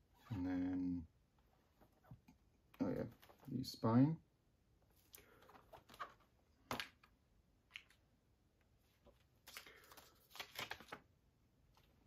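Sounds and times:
packaging rustles: 9.4s - 11.0s.

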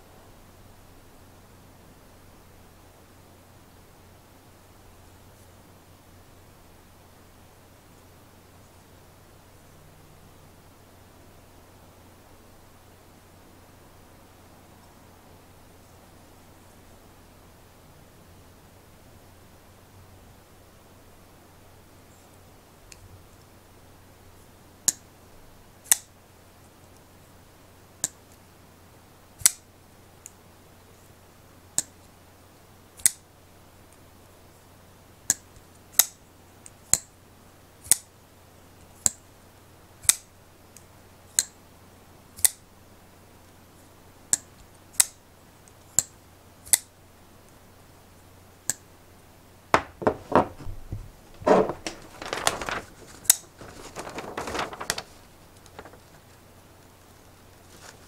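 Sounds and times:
folding knife clicking open and shut: 29.4s - 29.6s, 33.0s - 33.2s, 42.4s - 42.6s, 46.0s - 46.9s
paper rustling and rubbing: 49.8s - 58.0s.

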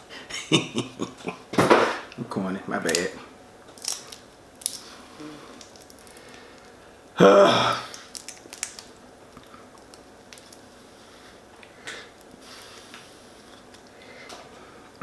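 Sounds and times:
shells cracking and snapping: 2.8s - 3.1s, 3.7s - 6.8s, 7.8s - 10.6s
person humming briefly: 5.1s - 5.6s.

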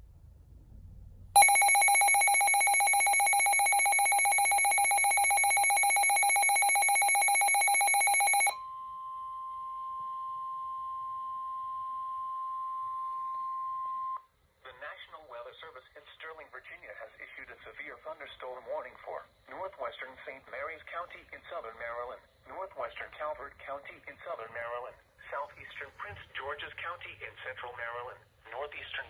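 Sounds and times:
rapidly pulsing multi-tone alarm: 1.4s - 8.6s
steady single warning tone: 1.4s - 14.2s.

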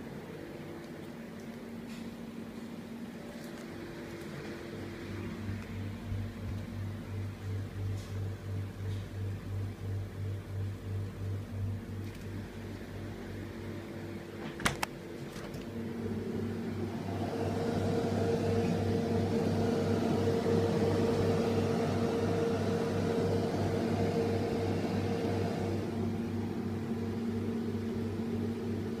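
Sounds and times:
fan rushing air: 0.0s - 29.0s
refrigerator compressor hum: 0.0s - 29.0s.

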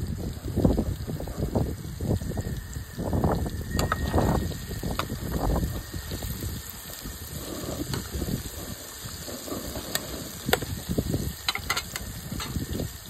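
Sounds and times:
fish deep-frying in hot oil: 0.0s - 13.0s
wind rumble on microphone: 0.0s - 13.0s
crackling pops of oil: 9.9s - 10.8s.

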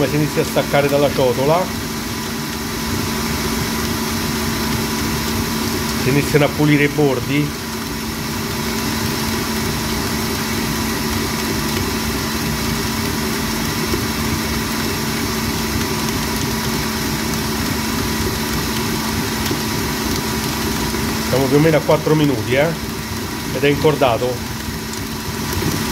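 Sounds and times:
stand mixer motor humming: 0.0s - 25.9s.

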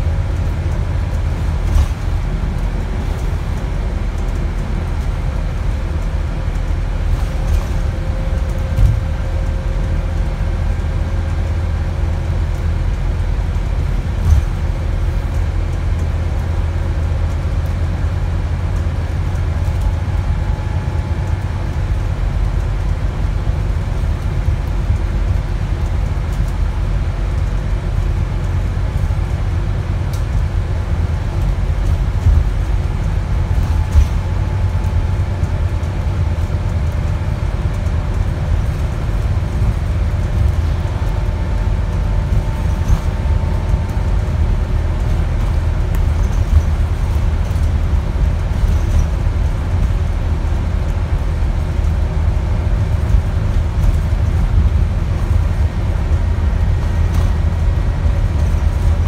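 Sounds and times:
bus engine and road rumble: 0.0s - 59.0s
body knocks and rattles: 0.8s - 11.2s, 13.8s - 16.0s, 31.1s - 59.0s.

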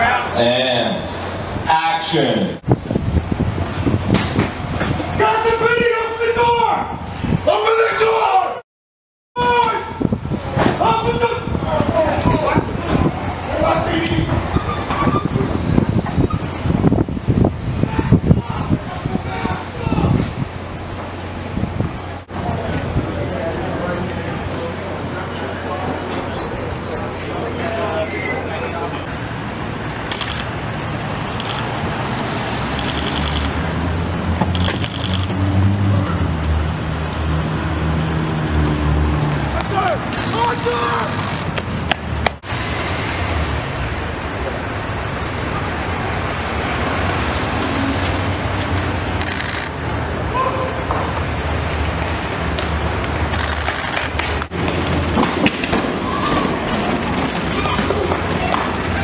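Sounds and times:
low traffic rumble: 0.0s - 8.6s, 9.4s - 59.0s
rapid clicking bursts: 29.9s - 31.8s, 32.6s - 33.6s, 34.5s - 35.4s, 40.1s - 41.7s.

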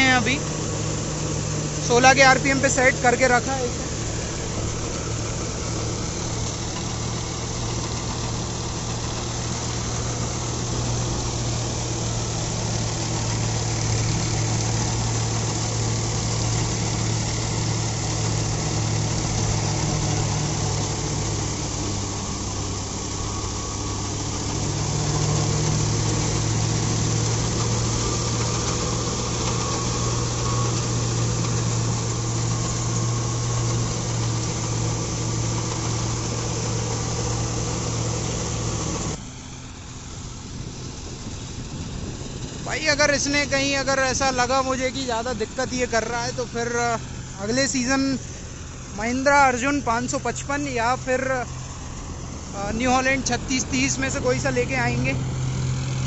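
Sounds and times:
reaper cutting straw: 0.0s - 39.3s
tractor diesel engine running: 0.0s - 56.0s.

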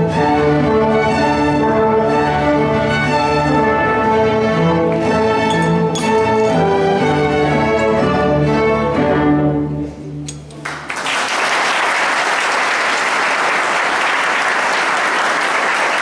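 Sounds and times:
string orchestra playing: 0.0s - 10.4s
audience applause: 10.6s - 16.0s.

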